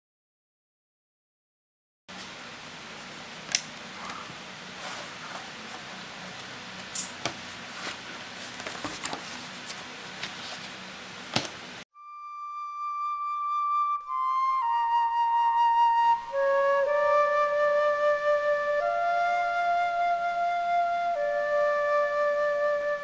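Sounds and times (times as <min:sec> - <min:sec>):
room hiss: 0:02.1 - 0:12.2, 0:14.1 - 0:23.0
flute melody: 0:11.9 - 0:23.0.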